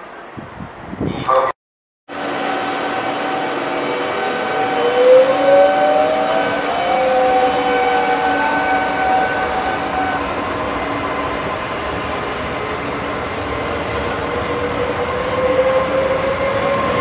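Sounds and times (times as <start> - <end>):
electric train running: 2.1 - 17.0
traction motor whine rising in pitch: 2.2 - 10.1.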